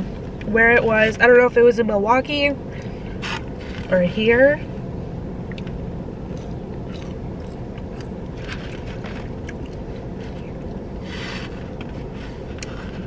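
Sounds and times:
low rumble inside car: 0.0s - 13.0s
chewing crispy food: 6.3s - 10.8s.

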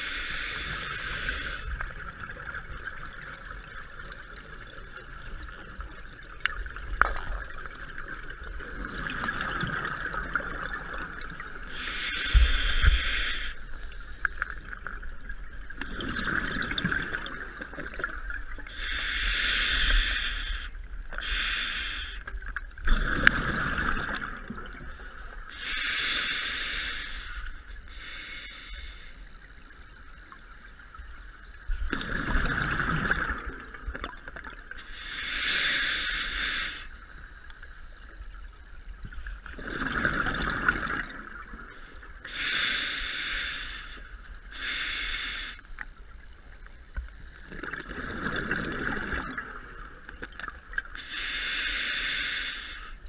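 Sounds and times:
regulator hissing inhale: 0.0s - 1.8s, 11.7s - 14.4s, 18.7s - 22.3s, 25.0s - 29.6s, 34.8s - 37.2s, 42.2s - 45.8s, 50.9s - 53.0s
gurgle of exhaled bubbles: 1.8s - 11.7s, 14.6s - 18.4s, 22.8s - 25.0s, 31.9s - 34.6s, 39.5s - 41.8s, 47.4s - 50.8s.

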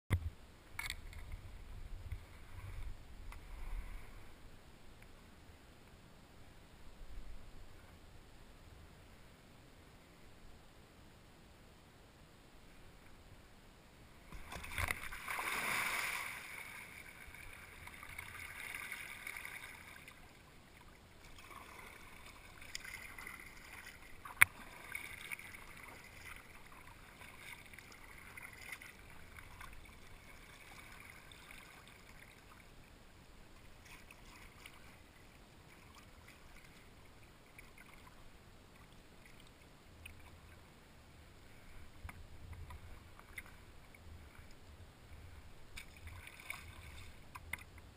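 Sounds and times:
kayak paddle strokes: 14.2s - 32.7s, 41.4s - 47.9s
water splashing against hull: 14.2s - 32.7s, 33.6s - 40.7s, 41.4s - 47.9s.

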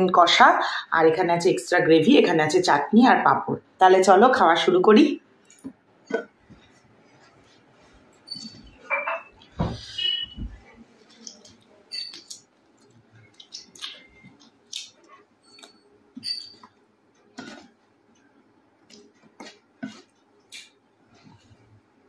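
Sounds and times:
wet mouth clicks and smacks: 11.1s - 15.8s.

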